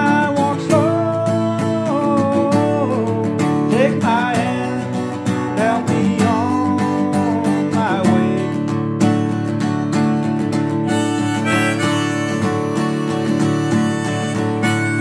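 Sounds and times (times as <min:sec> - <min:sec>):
acoustic guitar strumming chords: 0:00.0 - 0:15.0
harmonica melody with bending notes: 0:10.7 - 0:15.0.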